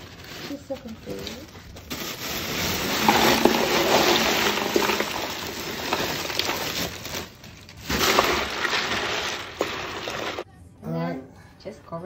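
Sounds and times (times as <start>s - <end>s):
ice cubes rattling and splashing: 0.0s - 10.5s.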